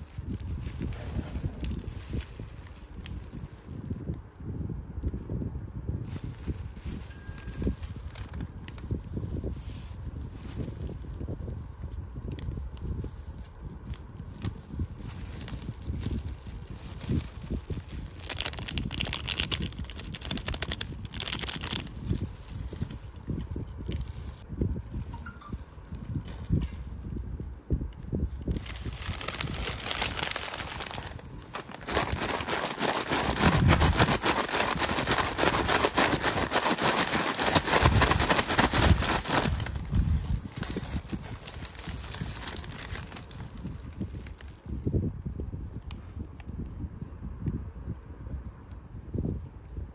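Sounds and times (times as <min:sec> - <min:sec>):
fries tumbling in a bag: 0:00.0 - 0:04.2, 0:06.0 - 0:11.5, 0:12.3 - 0:25.1, 0:28.5 - 0:44.8
paper and plastic glove crinkling: 0:00.0 - 0:27.3, 0:28.1 - 0:46.5
seasoning packet rustling: 0:12.8 - 0:25.1, 0:28.4 - 0:44.7.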